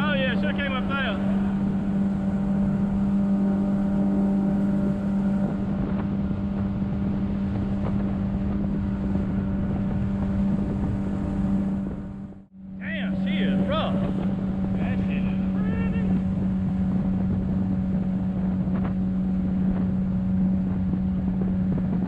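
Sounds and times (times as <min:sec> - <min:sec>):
boat engine humming: 0:00.0 - 0:22.0
wind: 0:00.0 - 0:22.0
water rushing: 0:12.8 - 0:22.0.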